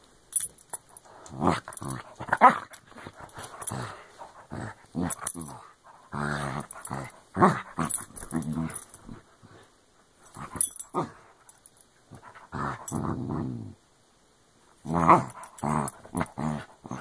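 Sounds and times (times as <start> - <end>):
dog growling: 1.1 - 9.2, 12.1 - 13.8, 14.8 - 17.0.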